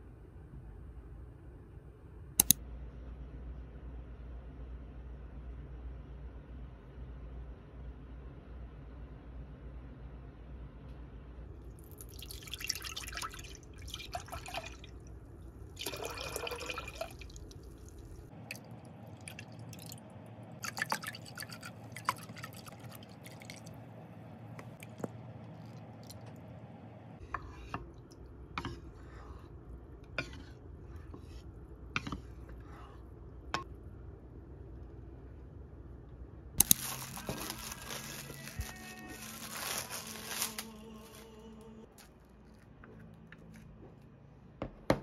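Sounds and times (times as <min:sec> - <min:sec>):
milk pouring into a pot: 0:11.8 - 0:15.1, 0:15.7 - 0:18.6.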